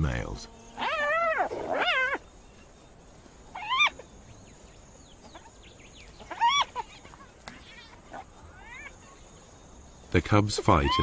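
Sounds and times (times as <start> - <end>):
hyena whining calls: 0.5 - 2.8, 3.4 - 4.4, 5.0 - 9.6, 10.6 - 11.0.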